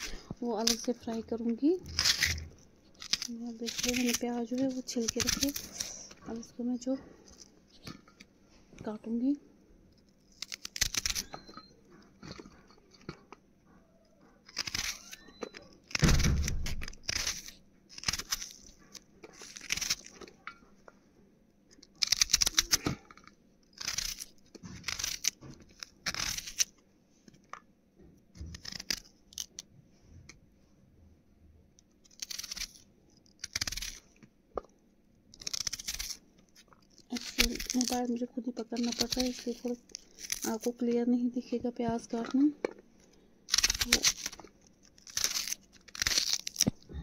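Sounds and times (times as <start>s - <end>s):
knife crunching through onion: 0.0s - 6.5s, 10.0s - 13.4s, 14.3s - 20.5s, 21.8s - 26.8s, 28.4s - 29.7s, 32.0s - 34.3s, 35.3s - 40.9s, 43.4s - 47.0s.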